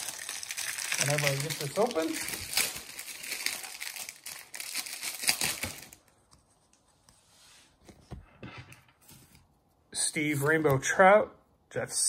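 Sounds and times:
wrapper crinkling as torn open: 0.0s - 6.1s.

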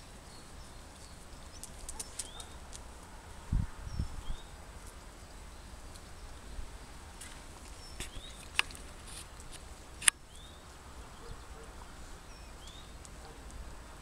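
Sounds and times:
bird chirps: 0.0s - 2.7s, 5.4s - 8.8s, 10.0s - 13.5s
sharp clicks: 1.6s - 2.8s, 7.2s - 10.2s.

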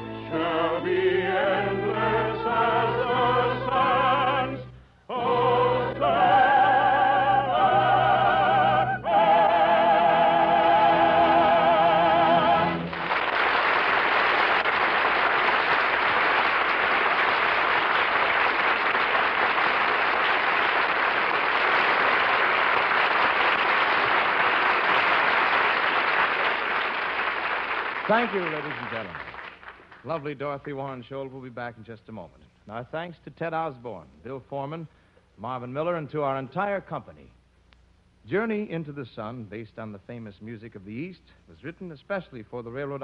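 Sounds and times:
operatic singing with orchestra: 0.0s - 12.9s
audience applauding: 12.6s - 30.1s.

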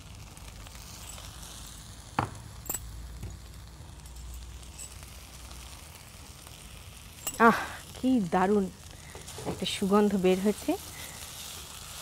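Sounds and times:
food sizzling in pan: 0.0s - 12.0s
utensil knocking on pan: 2.2s - 2.5s.

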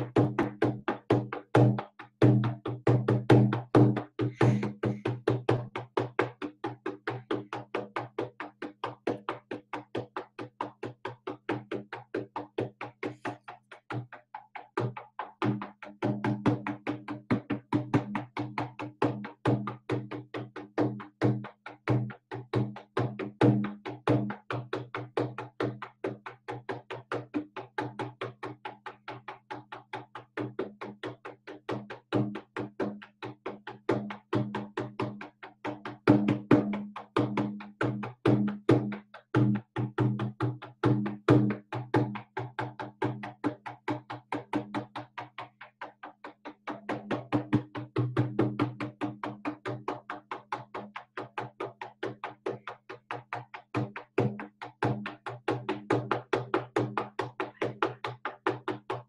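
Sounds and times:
frame drum beaten fast: 3.2s - 5.1s.

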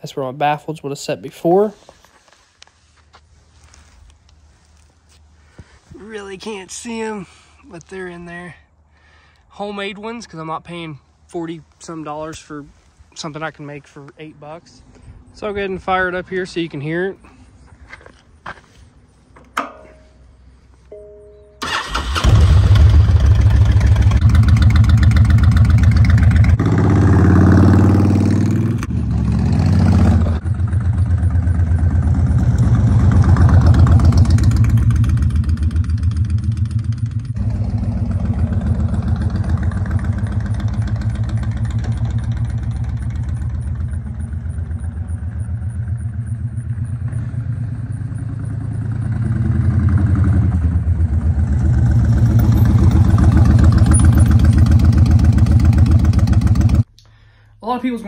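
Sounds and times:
motorcycle engine revving: 21.6s - 56.9s
motorcycle riding by: 22.4s - 56.8s.

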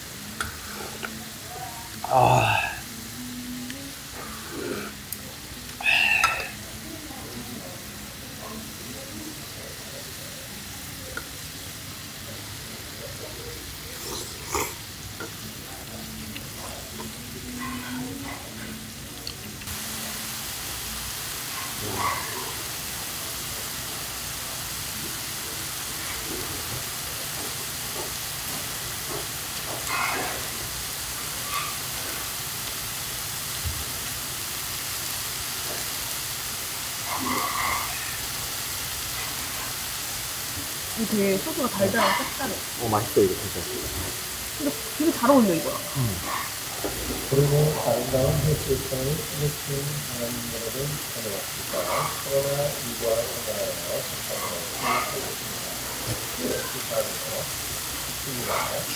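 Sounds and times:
food sizzling on a griddle: 0.0s - 58.9s.

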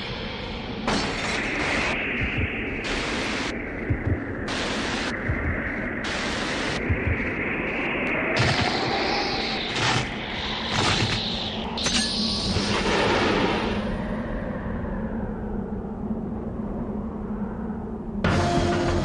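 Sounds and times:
electronic hum: 0.7s - 13.7s
static-like hiss: 0.9s - 11.7s
low double thump: 3.9s - 4.3s.

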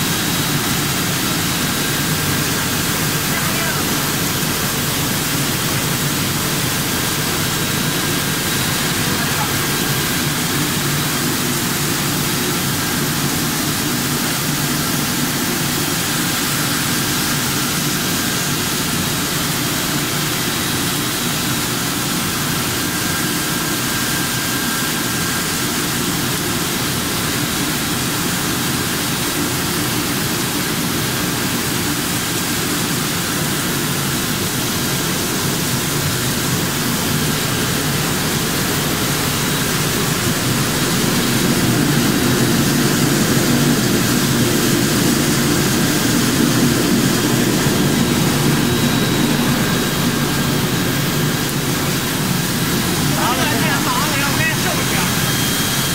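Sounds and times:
faint high whine: 0.0s - 13.1s, 36.7s - 55.9s.

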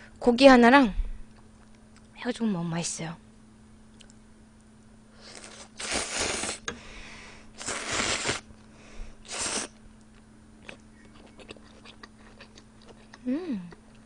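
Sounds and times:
person slurping noodles: 5.2s - 6.6s, 7.6s - 8.4s, 9.2s - 9.7s.

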